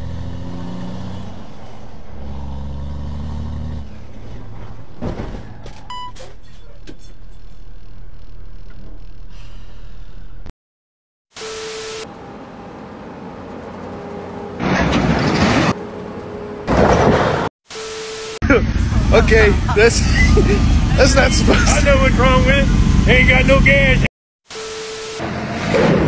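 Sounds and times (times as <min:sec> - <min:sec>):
truck engine and road noise: 0:00.0 - 0:10.5, 0:11.3 - 0:26.0
short electronic beep: 0:05.9 - 0:06.3.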